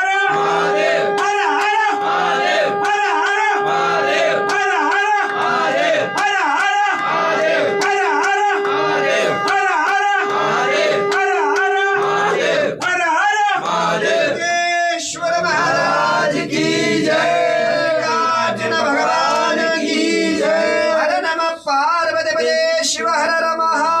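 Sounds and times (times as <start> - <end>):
steady held tone: 0.0 - 12.6
men singing a chant together: 0.0 - 24.0.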